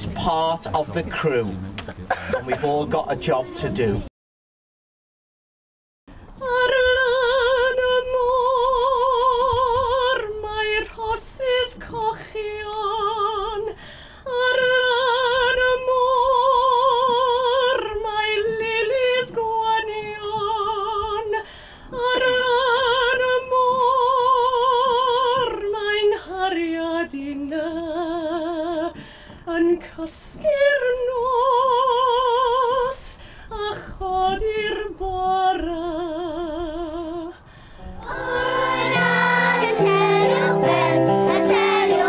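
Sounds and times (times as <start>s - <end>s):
woman singing with vibrato: 6.4s - 37.4s, 38.1s - 42.0s.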